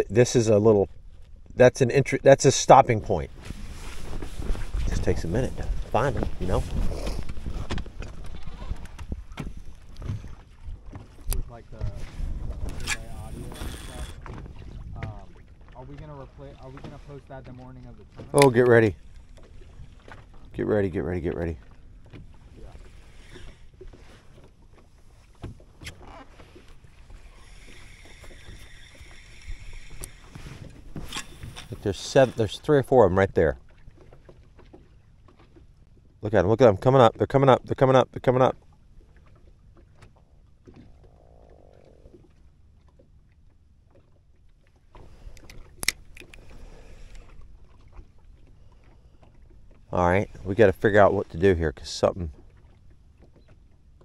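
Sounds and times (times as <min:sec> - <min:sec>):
wind and water rumble: 0:00.0 - 0:54.0
fishing reel whirring: 0:12.8 - 0:14.2, 0:22.8 - 0:23.8, 0:27.1 - 0:30.4
fishing reel click: 0:45.3 - 0:47.2.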